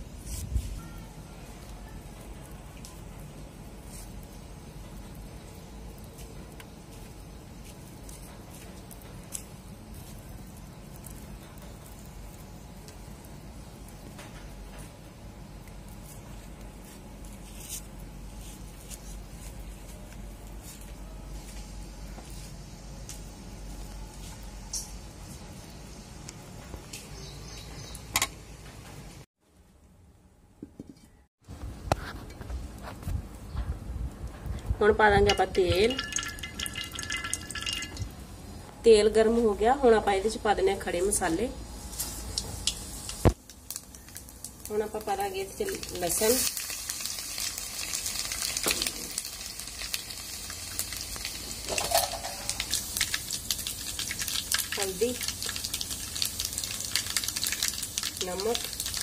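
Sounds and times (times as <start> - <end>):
spices sizzling in hot oil: 0.0 - 21.6, 34.8 - 38.7, 39.6 - 59.0
brief tone: 0.7 - 2.1
metal pot knocking: 35.3 - 38.1.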